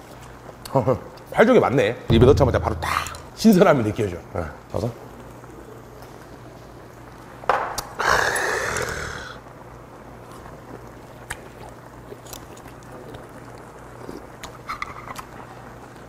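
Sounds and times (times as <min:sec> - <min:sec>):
breathy exhale: 0:08.0 - 0:09.4.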